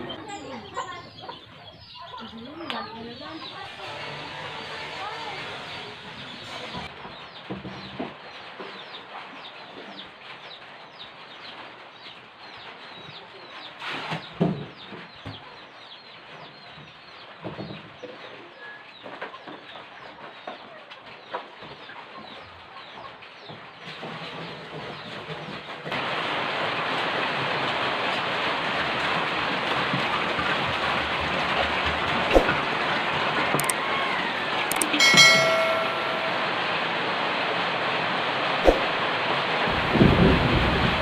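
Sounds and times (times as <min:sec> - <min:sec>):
birds chirping: 0:00.0 - 0:10.0, 0:32.1 - 0:37.2.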